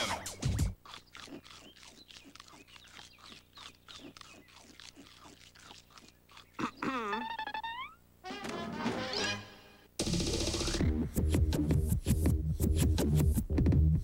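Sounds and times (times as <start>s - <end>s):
rapid crunching chews: 0.0s - 6.8s.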